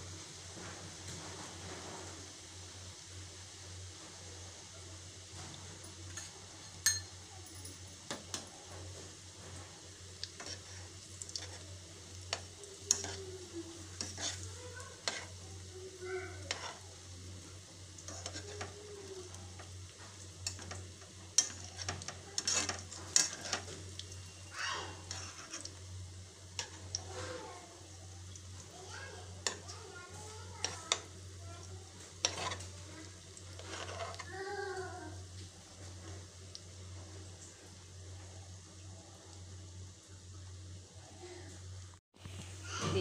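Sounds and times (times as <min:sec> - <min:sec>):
rolls sizzling in oil: 0:00.0 - 0:43.0
metal spoon scraping pan: 0:10.4 - 0:10.8, 0:12.3 - 0:13.2, 0:13.8 - 0:15.4, 0:16.4 - 0:16.8, 0:18.1 - 0:18.8, 0:21.4 - 0:24.1, 0:25.0 - 0:25.8, 0:32.2 - 0:32.8, 0:33.5 - 0:34.3.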